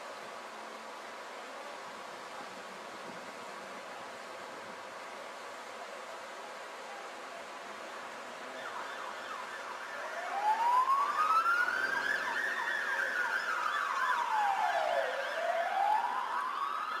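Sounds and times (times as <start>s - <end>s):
siren slow wail: 8.4s - 17.0s.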